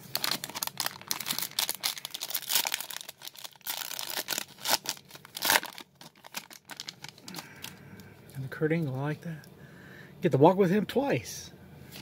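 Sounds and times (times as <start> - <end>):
foil wrapper tearing and crinkling: 0.0 - 7.7
foil crackling: 0.0 - 7.8.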